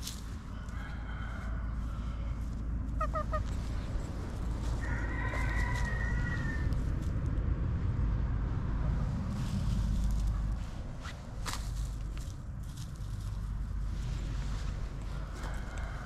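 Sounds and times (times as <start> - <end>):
low rumble: 1.3 - 16.0
chickens clucking: 2.9 - 5.8.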